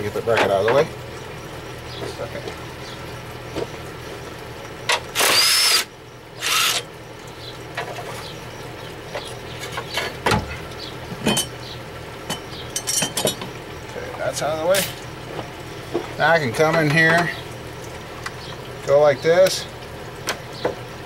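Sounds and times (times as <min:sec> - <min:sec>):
cordless drill whining: 0:05.2 - 0:06.8.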